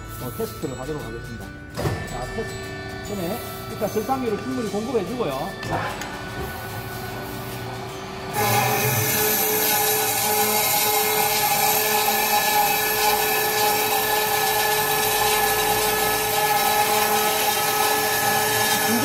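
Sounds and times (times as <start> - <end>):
cold saw cutting metal pipe: 0.0 - 19.0.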